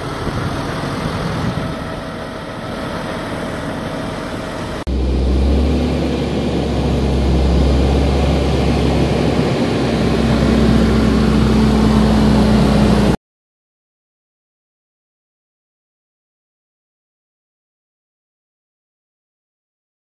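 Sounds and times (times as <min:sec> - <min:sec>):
tractor diesel engine rumbling: 0:00.0 - 0:13.2.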